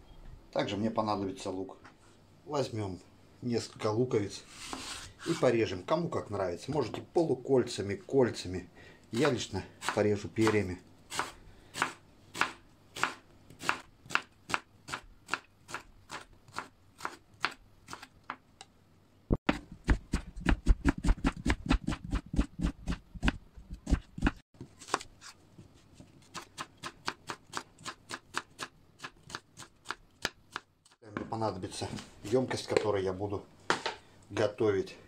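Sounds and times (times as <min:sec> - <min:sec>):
knife chopping on wooden board: 0:09.2 - 0:18.4, 0:19.4 - 0:25.0.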